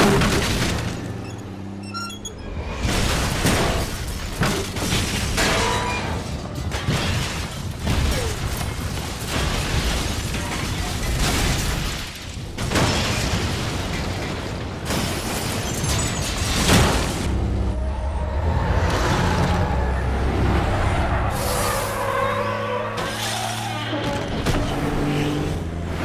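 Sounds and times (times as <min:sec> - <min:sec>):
glass breaking: 0:02.8 - 0:17.2
debris falling: 0:02.8 - 0:17.5.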